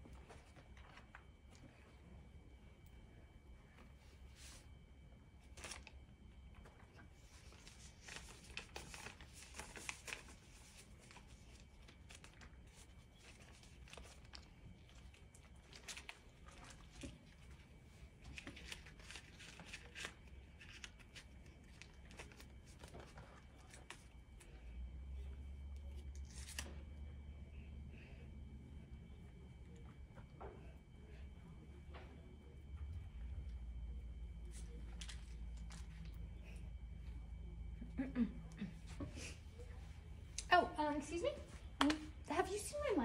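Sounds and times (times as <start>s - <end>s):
paper banknotes rustling: 7.0s - 17.5s, 18.2s - 24.5s, 25.9s - 26.7s.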